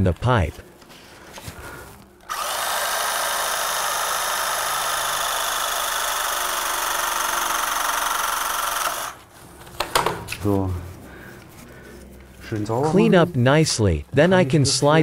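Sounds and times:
cordless pipe expander motor: 0:02.2 - 0:09.3.

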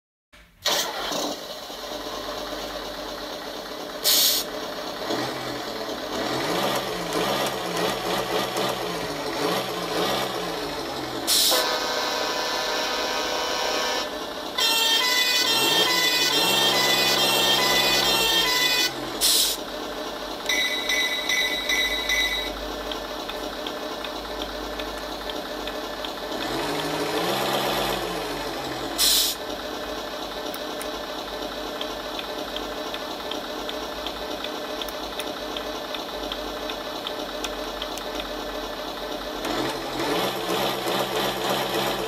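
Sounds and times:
simulated truck engine revving: 0:00.4 - 0:42.0
short hisses: 0:04.0 - 0:04.5, 0:29.0 - 0:29.4
steady horn-like tone: 0:11.5 - 0:14.1.

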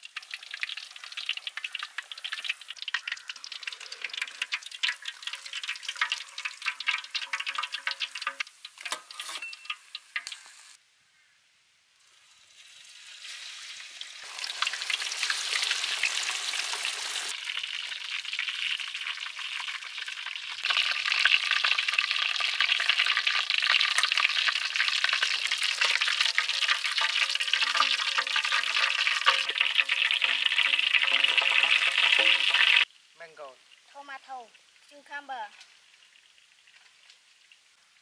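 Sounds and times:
hot oil sizzling and crackling: 0:00.0 - 0:10.8, 0:12.0 - 0:38.0.

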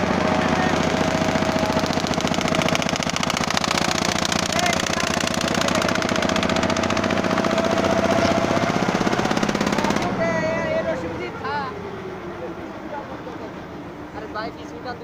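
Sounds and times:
boat engine knocking: 0:00.0 - 0:12.0.

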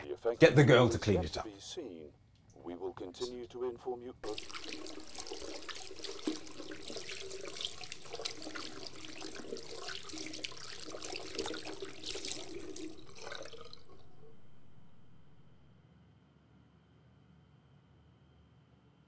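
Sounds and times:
cloth splashing under water: 0:04.2 - 0:15.6
tap water running into basin: 0:04.2 - 0:15.6.

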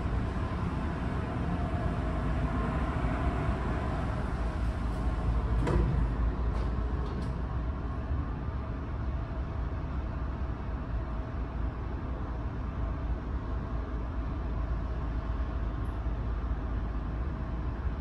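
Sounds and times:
ferry engine rumble: 0:00.0 - 0:18.0
sliding door opening with knock: 0:05.6 - 0:07.2.

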